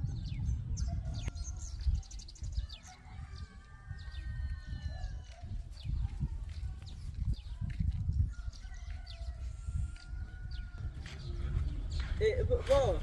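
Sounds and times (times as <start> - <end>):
birds chirping: 0.0 - 13.0
rooster crowing: 2.7 - 5.1.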